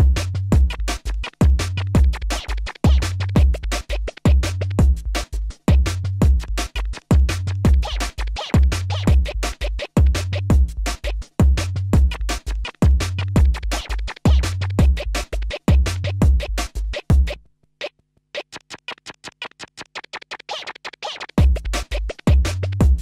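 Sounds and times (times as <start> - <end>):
electronic music: 6.2 - 11.2.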